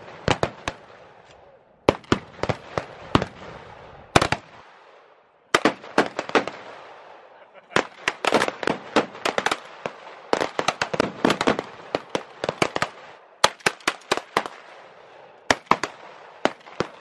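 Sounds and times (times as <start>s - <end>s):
shotguns firing: 5.5s - 7.2s, 7.8s - 17.0s.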